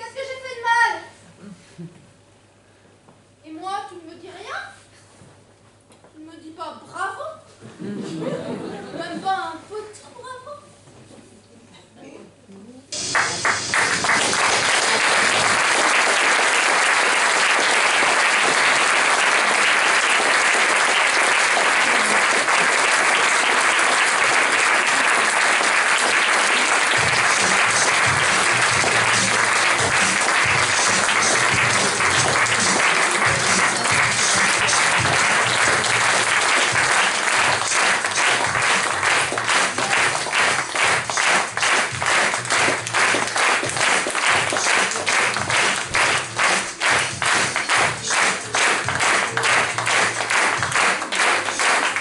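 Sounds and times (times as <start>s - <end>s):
audience applauding: 13.0s - 52.0s
music with a bass line: 27.0s - 35.9s.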